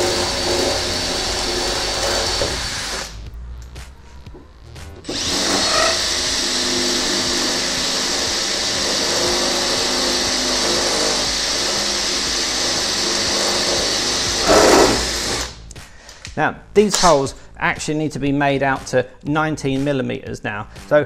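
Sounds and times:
cordless drill drilling sheet metal: 0:00.0 - 0:03.2, 0:05.0 - 0:15.6.

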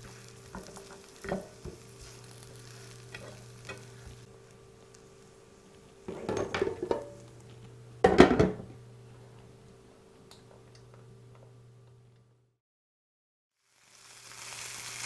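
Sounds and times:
faint steady hum: 0:00.0 - 0:12.6
tongs clattering against pan: 0:03.1 - 0:04.1
glass lid clanking on pan: 0:06.1 - 0:07.2, 0:08.0 - 0:08.7.

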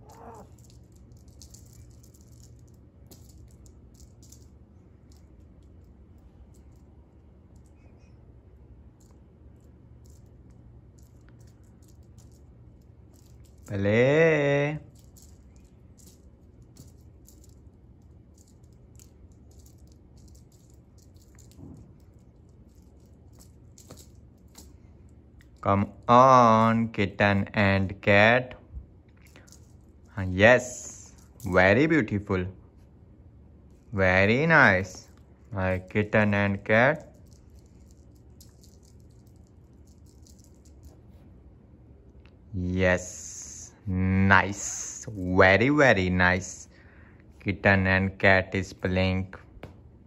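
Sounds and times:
cat toy rattling: 0:00.0 - 0:07.8, 0:09.0 - 0:13.8, 0:14.8 - 0:25.6, 0:36.9 - 0:41.2
low steady hum: 0:00.0 - 0:50.0.

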